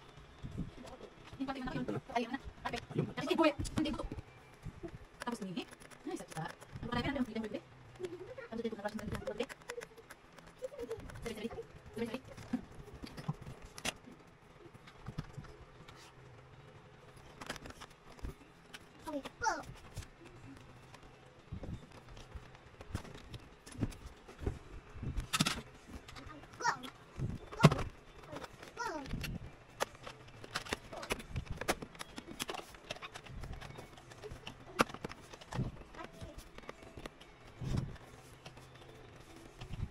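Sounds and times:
laptop handling clicks and knocks: 25.2 - 26.1, 27.6 - 38.7.

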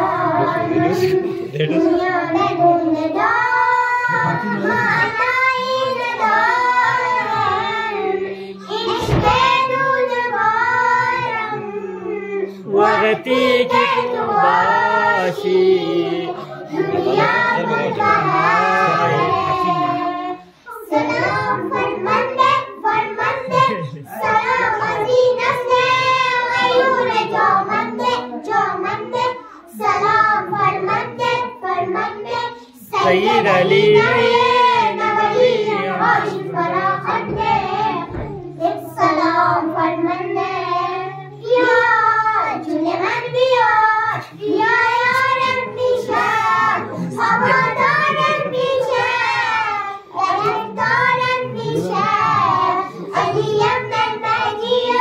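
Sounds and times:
girls singing together: 0.0 - 55.0.

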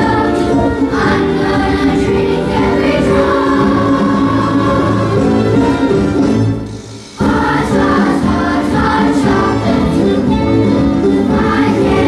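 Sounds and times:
children's choir singing: 0.0 - 6.4, 7.0 - 12.0.

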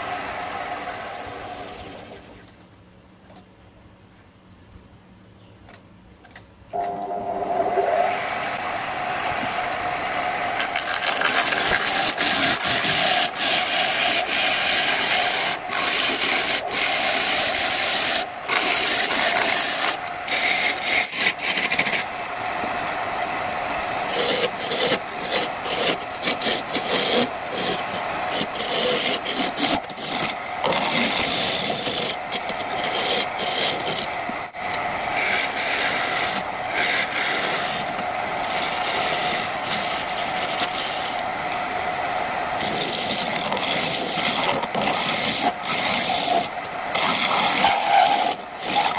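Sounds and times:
turning tool scraping wood: 10.6 - 22.1, 24.1 - 34.1, 35.2 - 41.2, 42.6 - 48.9.

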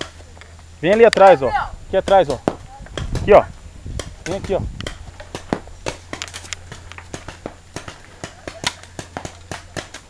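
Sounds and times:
paintball markers firing: 2.0 - 10.0.

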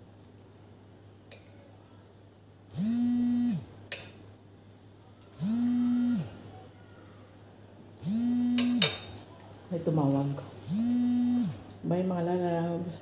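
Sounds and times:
mobile phone vibrating: 2.7 - 3.8, 5.4 - 6.4, 8.0 - 8.9, 10.6 - 11.7.

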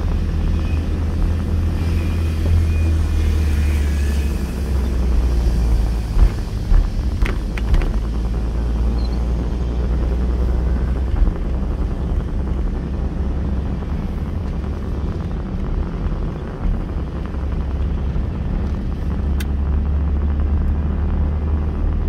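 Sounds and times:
car interior rumble: 0.0 - 22.0.

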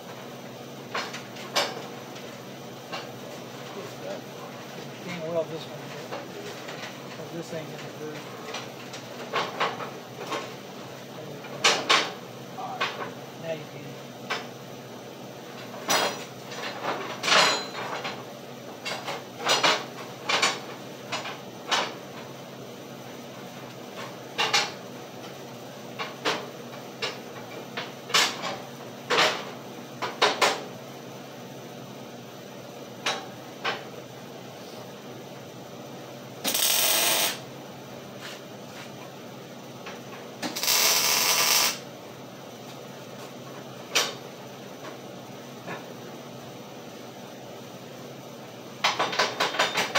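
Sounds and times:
arc welding crackle: 36.4 - 37.5, 40.4 - 41.9.

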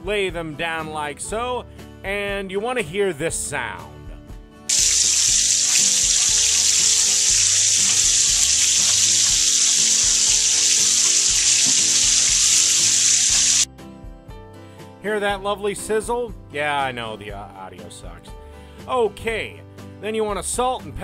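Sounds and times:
steaks sizzling in a pan: 4.7 - 13.7.

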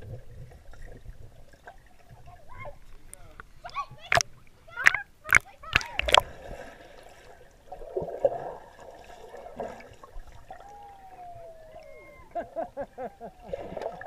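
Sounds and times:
muffled underwater sloshing: 0.0 - 14.0
gurgling bubble chirps: 4.8 - 6.6.

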